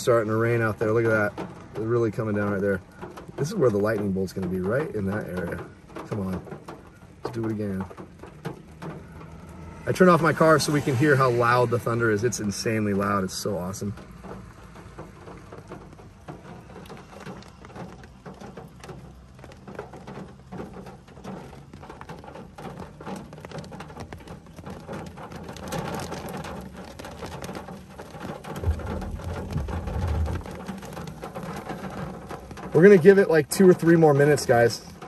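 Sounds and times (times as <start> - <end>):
rain on car roof: 0.0 - 35.0
low rumble: 8.8 - 14.6, 28.5 - 32.4.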